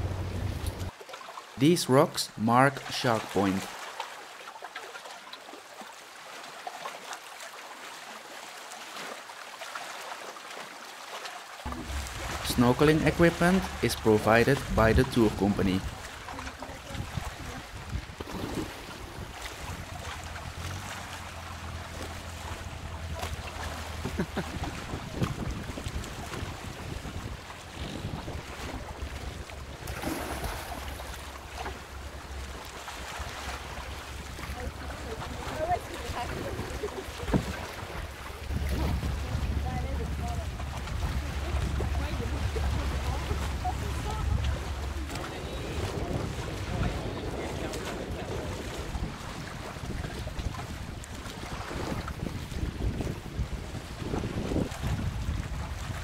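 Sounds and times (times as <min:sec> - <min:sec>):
wind rumbling on microphone: 0:00.0 - 0:00.9, 0:14.5 - 0:56.0
sea water lapping and splashing: 0:00.0 - 0:56.0.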